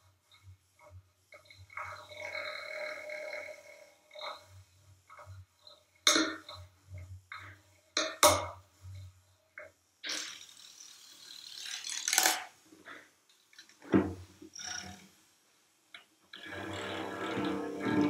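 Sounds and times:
noisy scraping on cello: 1.7 - 5.4, 16.4 - 18.0.

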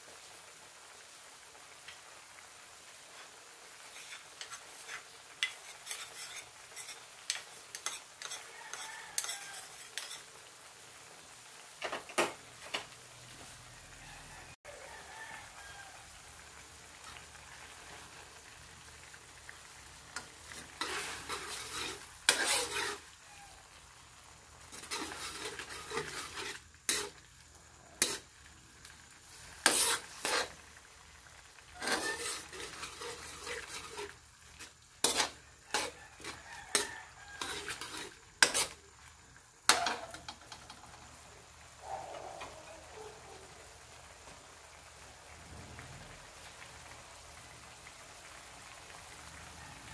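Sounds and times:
light sizzle: 0.0 - 49.9
metal ladle scraping a wok: 3.8 - 10.4, 20.2 - 23.5, 24.6 - 27.2, 28.0 - 28.3, 29.4 - 30.6, 31.7 - 38.8.

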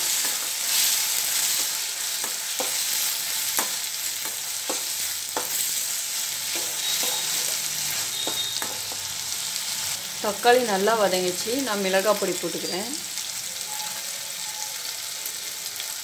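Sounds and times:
vegetables sizzling in hot oil: 0.0 - 16.0
metal spatula scraping pan: 6.5 - 9.1.

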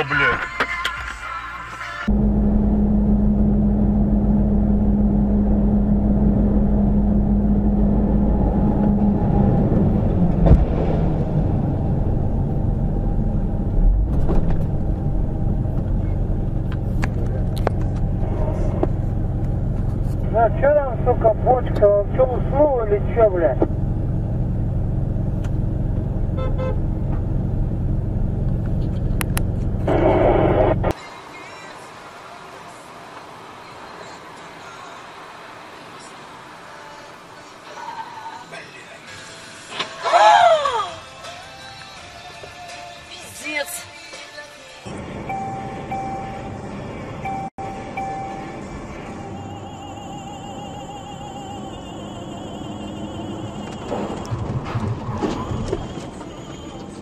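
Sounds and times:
vehicle engine and road drone: 0.0 - 57.0
short horn toots: 26.4 - 26.8.

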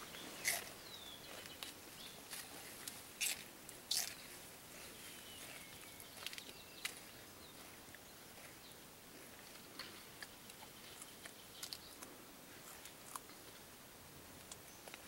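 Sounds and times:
gorilla chewing celery crunches: 0.2 - 7.1, 9.2 - 13.6.

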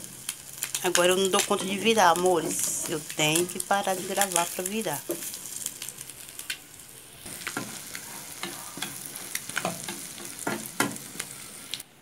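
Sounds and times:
omelette sizzling in pan: 0.0 - 11.9
spatula scraping pan: 1.4 - 5.4, 7.3 - 11.4.

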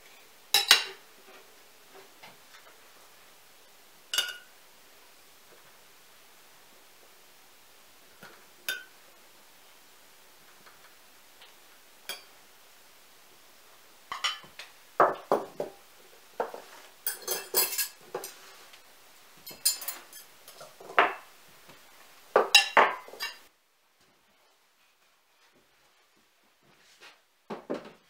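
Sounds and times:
dishes and cutlery clinking: 0.5 - 1.0, 4.1 - 4.5, 14.1 - 15.8, 16.4 - 18.5, 19.4 - 21.2, 22.4 - 23.5.

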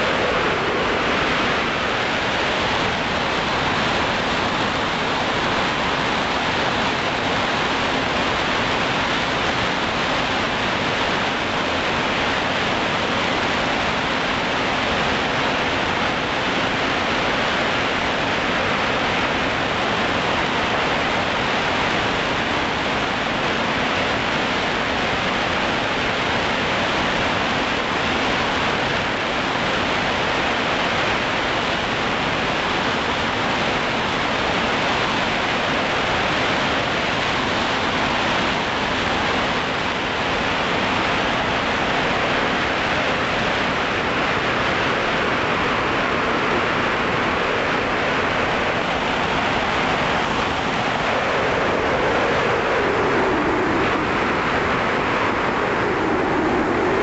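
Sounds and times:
wind rushing: 0.0 - 3.1, 45.8 - 57.0.

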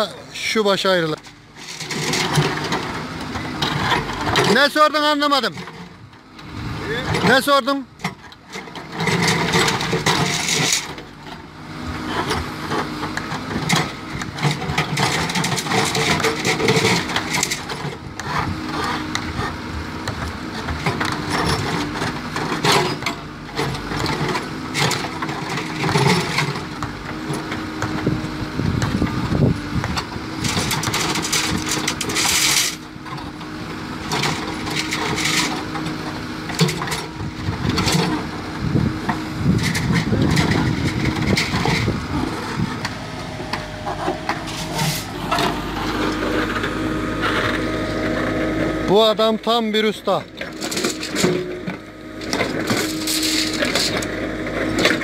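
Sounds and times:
diesel engine running: 0.0 - 55.0
steel bars clanking and scraping: 30.4 - 33.4, 34.0 - 38.3, 39.1 - 48.3, 48.9 - 55.0.

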